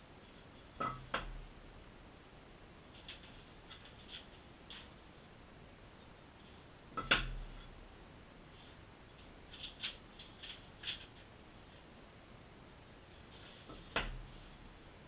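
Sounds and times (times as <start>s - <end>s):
paper rustling: 2.9s - 5.0s, 9.5s - 11.3s.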